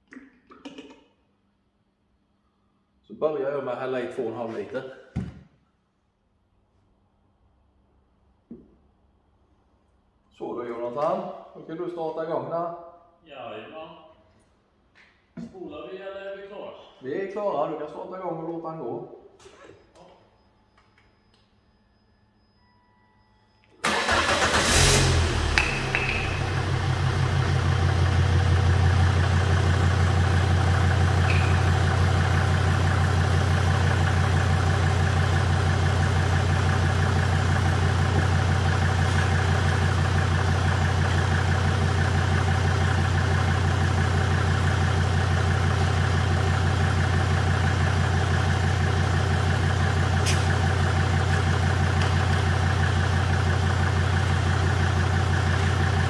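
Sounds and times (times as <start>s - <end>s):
diesel engine starting and idling: 23.8s - 56.0s.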